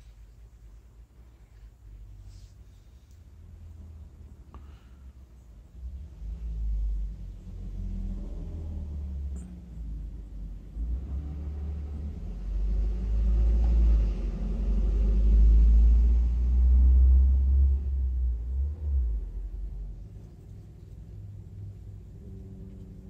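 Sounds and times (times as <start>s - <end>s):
low rumble: 5.6s - 23.0s.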